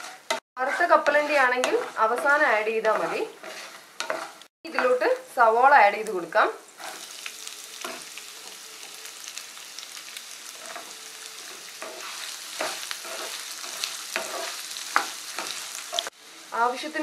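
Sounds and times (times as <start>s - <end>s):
wooden spatula scraping a pan: 0.0s - 5.0s, 6.8s - 7.2s, 10.5s - 16.1s
onions sizzling in oil: 0.0s - 17.0s.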